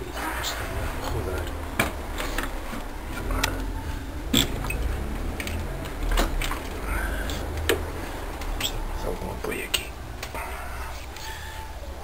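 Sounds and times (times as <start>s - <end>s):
sharp clicks and knocks: 4.3s - 8.8s.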